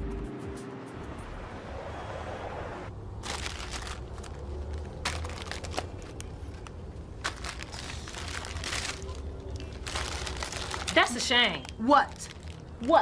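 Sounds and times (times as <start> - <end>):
car passing: 0.8 - 13.0
plastic bags crinkling: 3.2 - 13.0.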